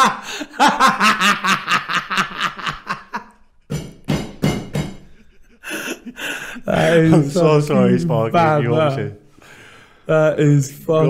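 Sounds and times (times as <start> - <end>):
man laughing hard: 0.0 - 3.4, 5.1 - 7.5.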